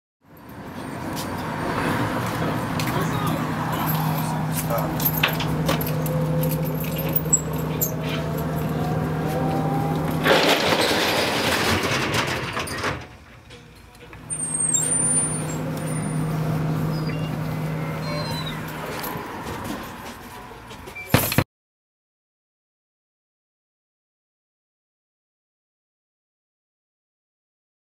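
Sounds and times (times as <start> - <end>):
vehicle engine humming: 0.3 - 21.3.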